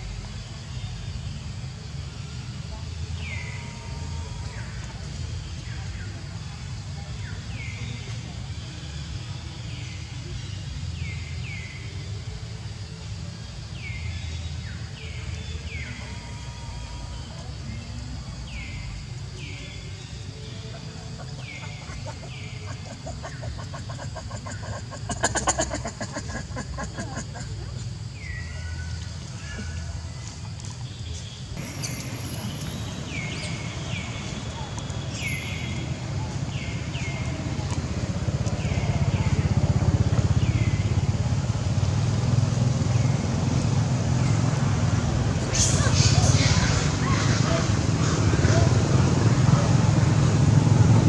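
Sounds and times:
engine running with low hum: 0:00.0 - 0:51.0
animal chirps and calls: 0:20.5 - 0:27.8.

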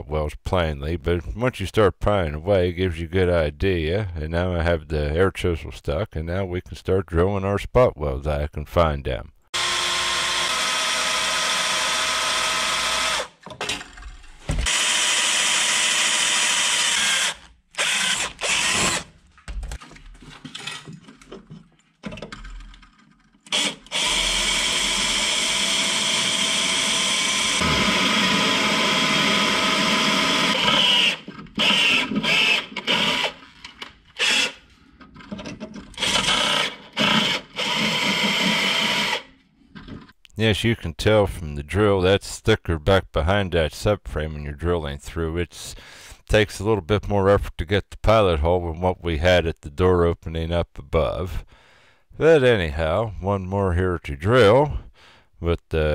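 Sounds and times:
power drill drilling into metal: 0:09.6 - 0:13.4, 0:14.6 - 0:19.1, 0:23.5 - 0:33.4, 0:34.2 - 0:34.6, 0:36.0 - 0:39.3.

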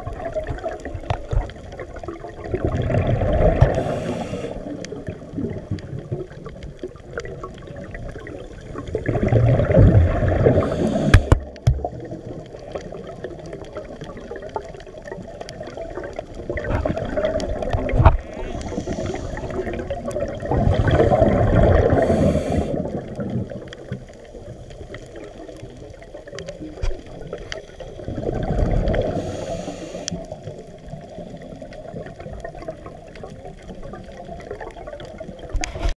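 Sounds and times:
underwater bubbles gurgling: 0:00.0 - 0:35.9.

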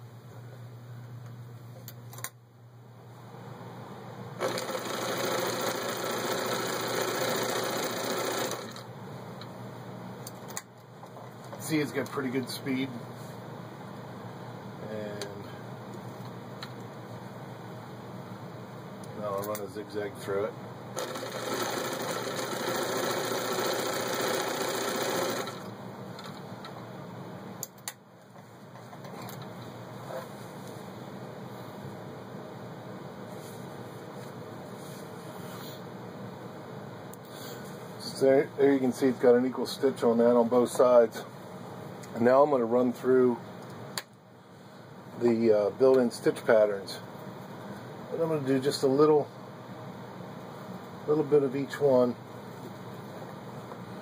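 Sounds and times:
sewing machine stitching: 0:04.4 - 0:08.8, 0:21.0 - 0:25.7.

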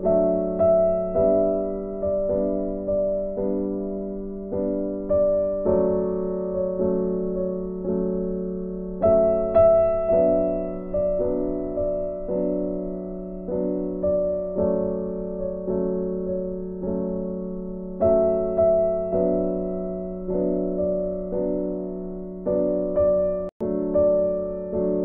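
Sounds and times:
gentle piano piece: 0:00.0 - 0:25.0.

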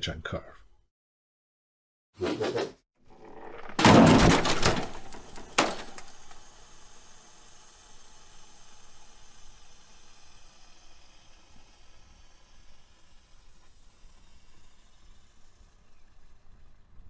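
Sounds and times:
loud crash with quick knocks: 0:03.4 - 0:06.4
faint hiss: 0:04.9 - 0:17.0.

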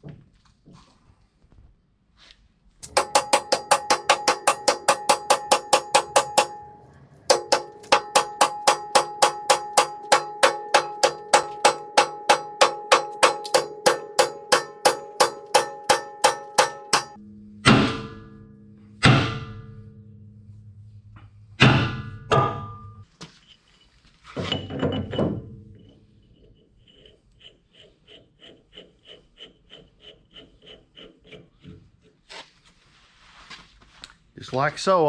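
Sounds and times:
hammer striking steel: 0:02.8 - 0:20.4, 0:21.1 - 0:23.1.

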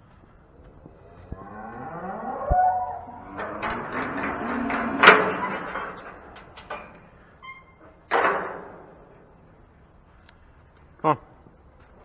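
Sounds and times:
metal gate and latch rattling: 0:00.9 - 0:09.4
loud metallic clang: 0:01.0 - 0:07.2.

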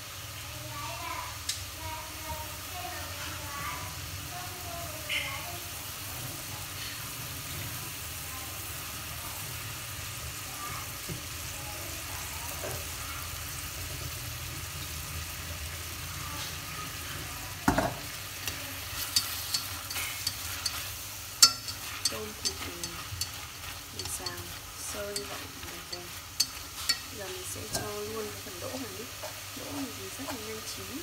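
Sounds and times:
meat sizzling in a pot: 0:00.0 - 0:31.0
chopsticks clicking against pot: 0:18.5 - 0:28.0.

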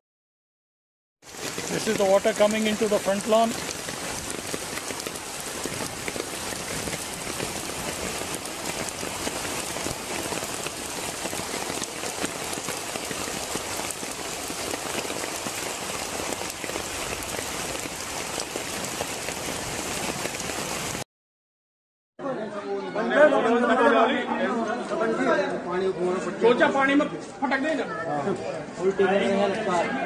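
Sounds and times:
floodwater rushing: 0:01.2 - 0:21.0
heavy rain on water: 0:01.2 - 0:21.0.

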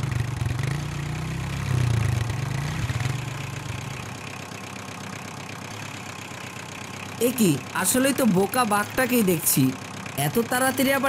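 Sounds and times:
engine running at low revs: 0:00.0 - 0:11.0.

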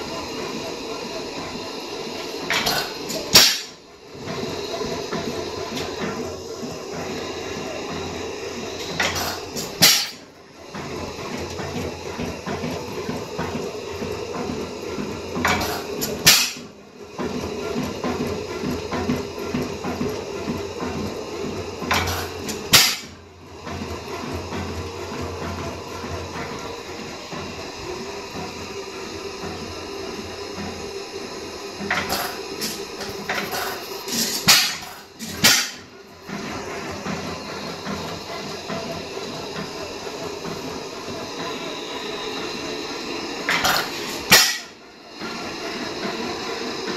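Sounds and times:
oil engine clattering: 0:00.0 - 0:46.9.

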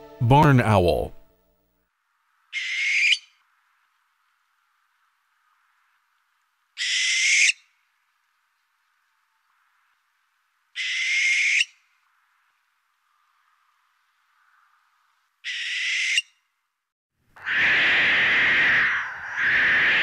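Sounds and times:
barn owl screeches: 0:02.6 - 0:03.4, 0:06.8 - 0:07.6, 0:10.8 - 0:11.8, 0:15.4 - 0:16.3, 0:17.4 - 0:20.0.

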